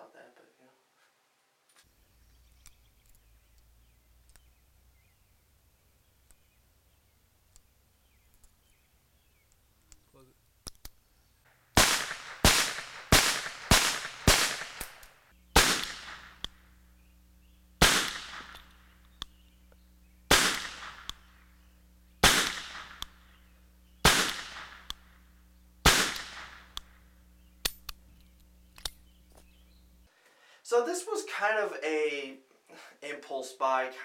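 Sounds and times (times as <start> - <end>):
faint clicks: 2.6 - 4.5
revolver shots with echo: 11.8 - 16.5, 17.8 - 18.8, 20.3 - 21.3, 22.2 - 23.2, 24.0 - 25.0, 25.9 - 26.8.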